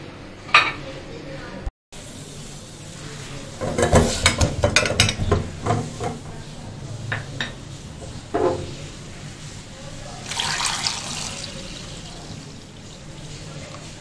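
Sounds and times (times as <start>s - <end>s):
water pouring into saucepan: 10.0s - 14.0s.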